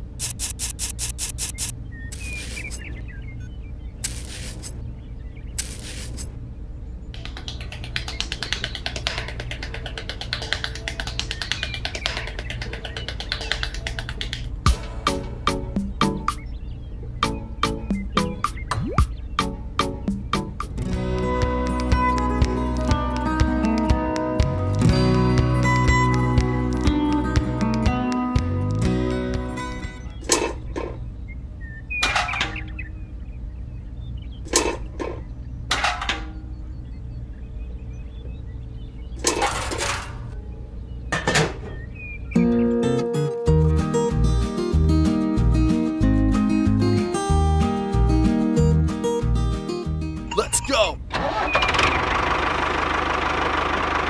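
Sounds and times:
trowel scraping sand: 0:00.2 - 0:02.9, 0:04.0 - 0:04.8, 0:05.6 - 0:06.3
background music: 0:07.2 - 0:30.2, 0:42.3 - 0:51.0.

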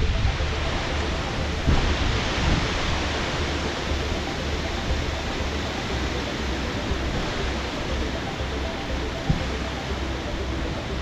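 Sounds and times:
strong wind buffeting microphone: 0:00.0 - 0:11.0.

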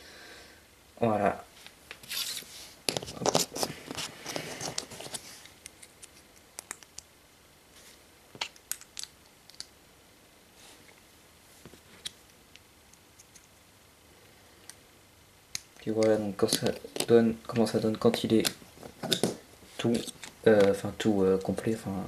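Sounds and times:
plastic toy parts clicking: 0:08.5 - 0:09.7, 0:15.5 - 0:19.3.

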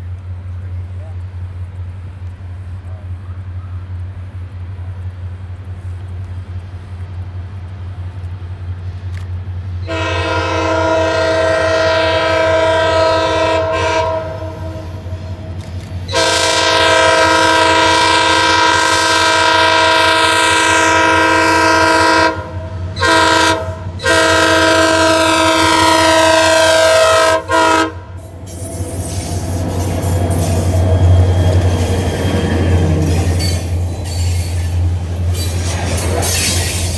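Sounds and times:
locomotive engine rumble: 0:00.0 - 0:36.9
locomotive air horn blasts: 0:09.8 - 0:15.4, 0:16.1 - 0:28.2
wheels clattering on rails: 0:28.2 - 0:36.9.

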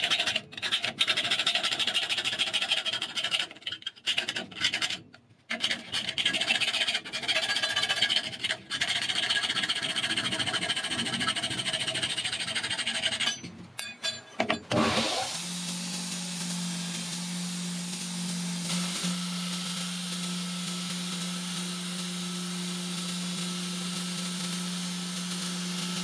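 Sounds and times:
hacksaw rasping through metal: 0:00.0 - 0:15.3
belt grinder humming: 0:00.0 - 0:20.8.

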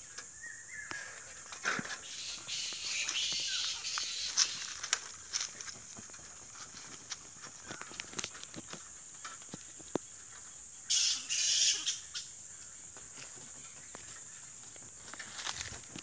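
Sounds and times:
bats screeching: 0:02.0 - 0:04.9, 0:10.9 - 0:12.3.

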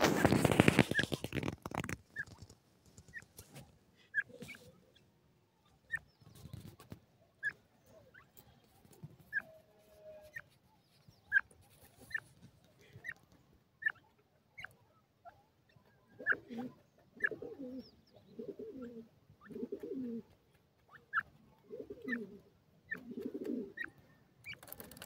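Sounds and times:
birds rustling in sand: 0:00.0 - 0:05.1, 0:05.7 - 0:13.6, 0:18.5 - 0:25.0
short high bird peeps: 0:04.0 - 0:08.6, 0:10.2 - 0:12.3.

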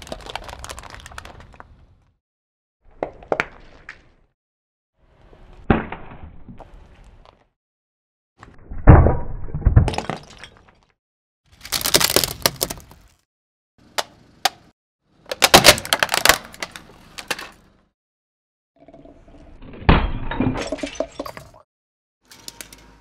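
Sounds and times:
objects crunching under car tyre: 0:11.5 - 0:13.2.

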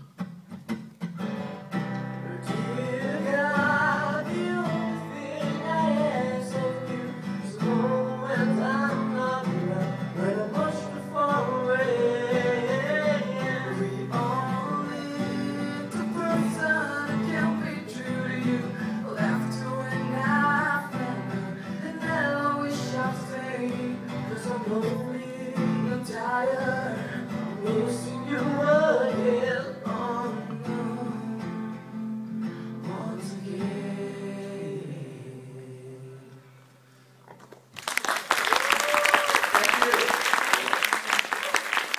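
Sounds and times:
acoustic guitar chords: 0:00.0 - 0:37.2
man singing: 0:02.2 - 0:31.9, 0:32.8 - 0:36.4
applause: 0:37.6 - 0:41.9.

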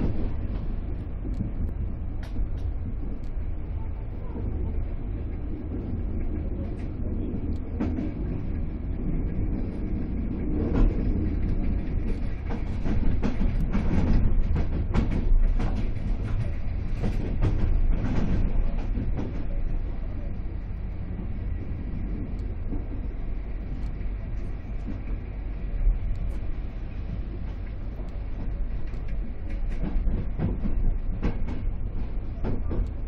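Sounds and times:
train wheels rumbling on track: 0:00.0 - 0:33.0
wheels clacking over rail joints: 0:06.0 - 0:19.8, 0:27.3 - 0:33.0.

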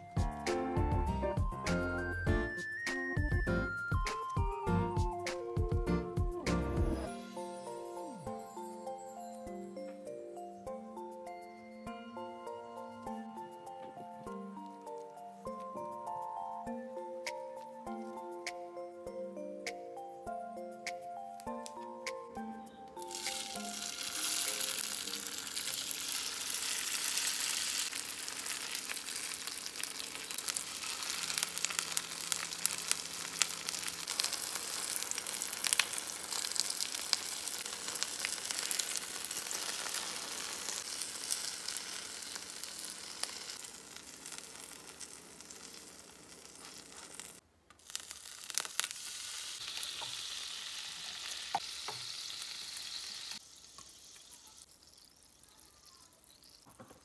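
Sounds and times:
food sizzling in oil: 0:23.0 - 0:57.0.

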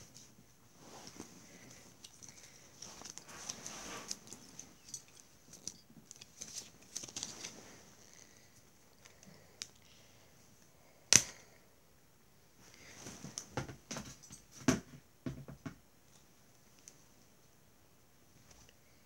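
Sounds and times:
rustling: 0:00.0 - 0:09.4.

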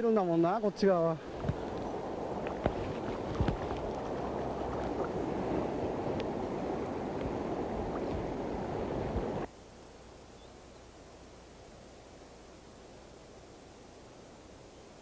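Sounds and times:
stream water rushing: 0:00.0 - 0:09.5
faint hiss: 0:00.0 - 0:15.0.

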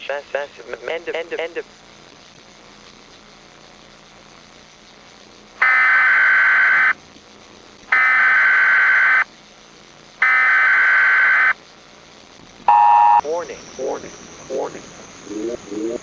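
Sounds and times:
digital data tone bursts: 0:05.6 - 0:07.0, 0:07.9 - 0:09.3, 0:10.2 - 0:11.6, 0:12.6 - 0:16.0
two-tone attention signal: 0:12.7 - 0:13.2.

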